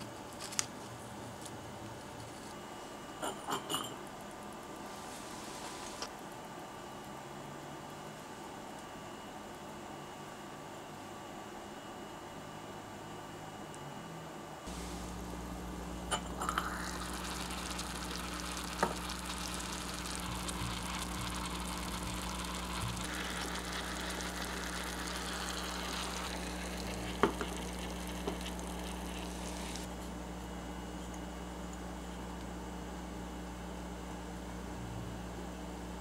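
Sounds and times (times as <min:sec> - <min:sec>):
low steady hum: 0:13.7 - 0:36.0
soup simmering with sizzle: 0:14.7 - 0:29.9.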